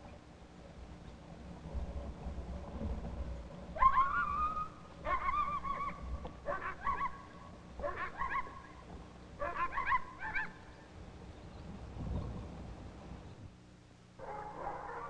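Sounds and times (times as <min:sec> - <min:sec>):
high wavering animal cries: 0:03.8 - 0:08.8, 0:09.4 - 0:10.7.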